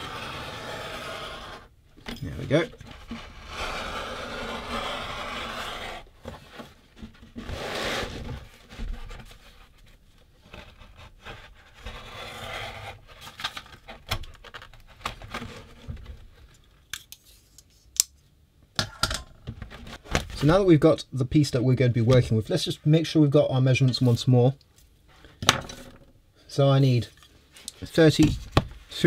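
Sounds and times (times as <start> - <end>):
knife cutting leather: 2.9 - 6.2.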